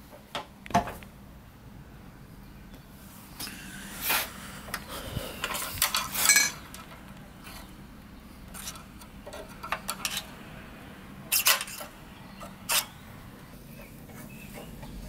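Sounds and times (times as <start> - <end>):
screwdriver clinking on metal: 5.4 - 7.6, 8.6 - 10.3, 11.3 - 12.9.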